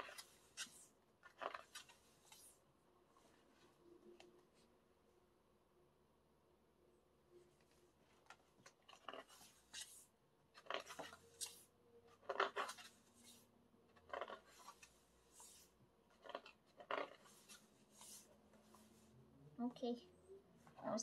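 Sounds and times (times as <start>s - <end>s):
pages turning: 0.0s - 2.6s, 7.6s - 19.2s.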